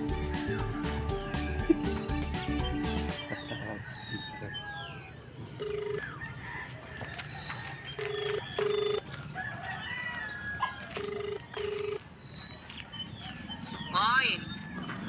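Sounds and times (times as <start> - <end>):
roosters crowing: 0.0 - 12.1, 13.0 - 15.0
small birds chirping: 0.0 - 15.0
phone ringback beeps: 5.6 - 6.2, 8.0 - 9.1, 10.9 - 12.0.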